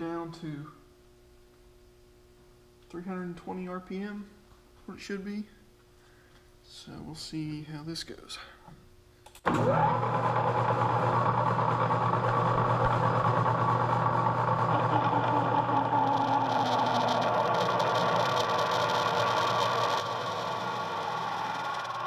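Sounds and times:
metal lathe motor hum and whine: 9.6 - 22.0
drill cutting metal: 12.8 - 22.0.

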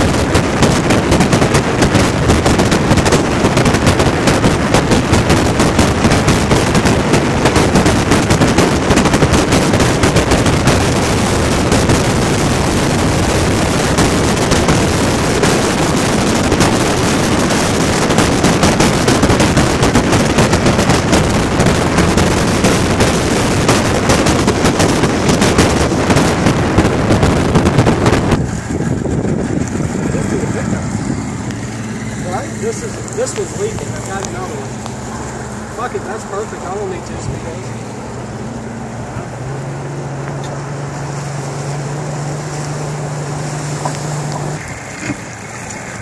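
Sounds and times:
boat engine running slowly: 0.0 - 46.0
rush of wake spray: 0.0 - 46.0
water washing around hull: 0.0 - 46.0
wind blasting microphone: 0.0 - 46.0.

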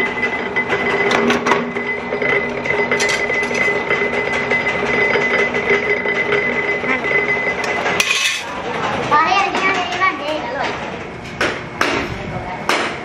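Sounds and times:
metal clank: 8.0 - 8.5.

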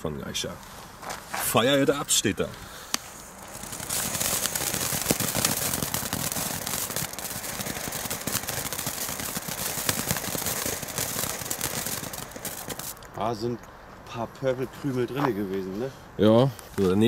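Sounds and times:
firework crackling: 1.2 - 13.3
firework fountain hissing: 2.6 - 13.1.

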